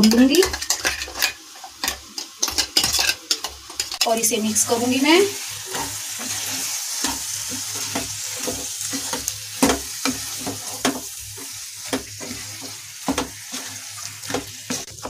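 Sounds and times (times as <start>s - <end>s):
frying sizzle: 0.0s - 15.0s
wooden spatula scraping a pan: 5.7s - 15.0s.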